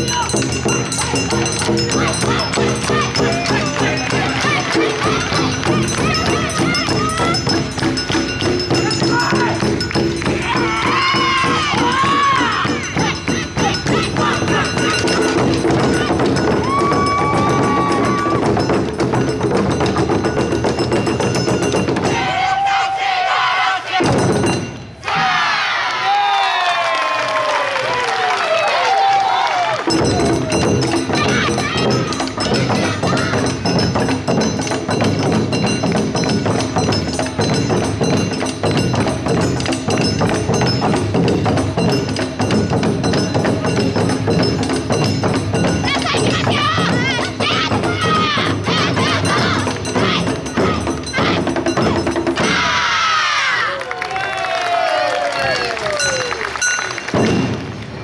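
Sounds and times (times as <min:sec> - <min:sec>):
drums beating: 0:00.0 - 0:26.3, 0:28.7 - 0:58.0.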